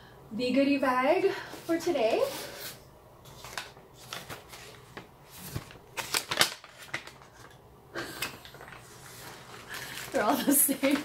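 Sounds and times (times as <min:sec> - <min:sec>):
paper bag rustling and crinkling: 0:01.7 - 0:07.6, 0:08.4 - 0:11.0.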